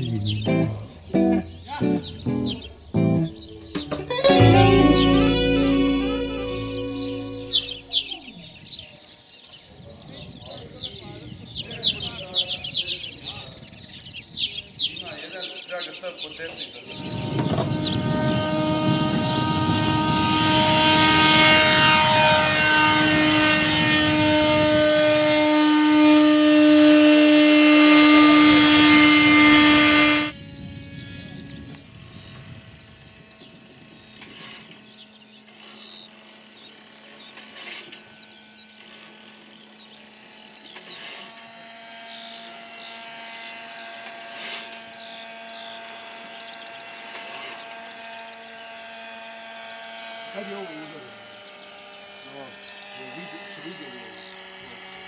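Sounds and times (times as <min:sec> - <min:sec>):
paramotor engine and propeller: 0:16.9 - 0:55.0.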